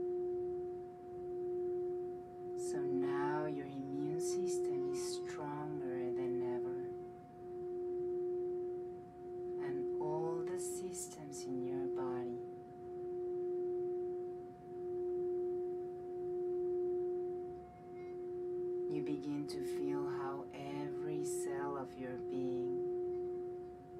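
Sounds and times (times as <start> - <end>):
singing bowl ringing tone: 0.0 - 23.9
soft voice: 2.6 - 6.9, 9.6 - 12.5, 18.9 - 22.8.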